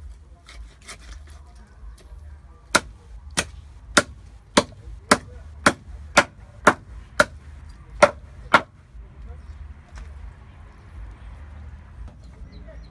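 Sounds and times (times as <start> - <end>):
meat cleaver chopping on wood block: 2.7 - 7.4.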